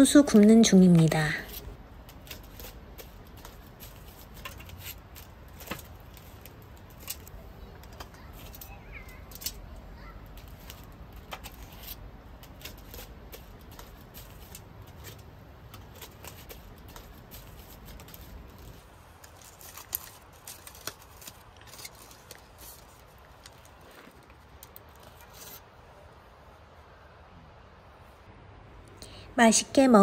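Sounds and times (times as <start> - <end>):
foil crinkling: 0.7 - 25.6.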